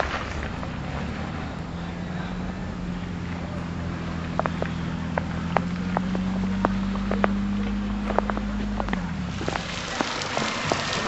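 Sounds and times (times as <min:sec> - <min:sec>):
irregular sharp ticks: 0:04.2 - 0:11.0.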